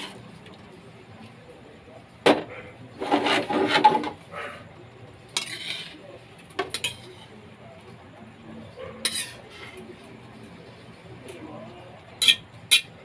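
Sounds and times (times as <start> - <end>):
metal spatula scraping a wok: 0.0 - 0.2, 2.9 - 4.2, 5.3 - 7.4, 9.0 - 9.8, 12.2 - 13.0.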